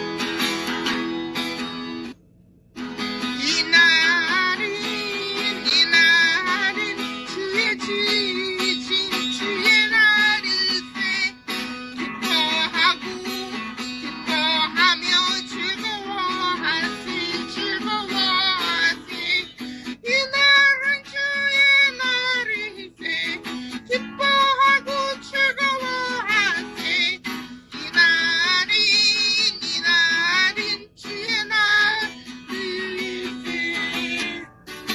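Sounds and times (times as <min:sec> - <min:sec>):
woman singing: 0:03.3 - 0:34.5.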